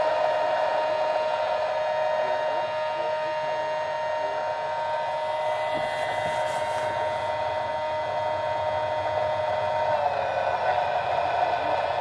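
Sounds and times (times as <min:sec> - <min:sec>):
electric motor and propeller whine: 0:00.0 - 0:12.0.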